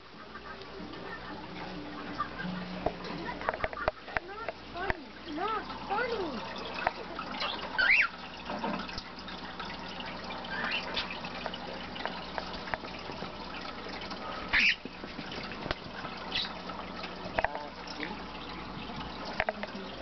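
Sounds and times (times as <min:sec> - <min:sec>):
cockatiels chirping: 0:07.4 - 0:08.1, 0:14.5 - 0:14.8.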